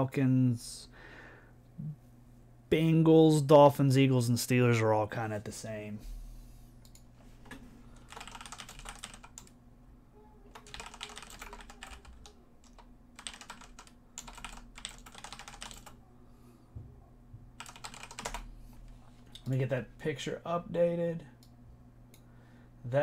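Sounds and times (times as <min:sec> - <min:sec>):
typing on computer keyboard: 0:08.0 - 0:09.6, 0:10.5 - 0:16.0, 0:17.6 - 0:18.5.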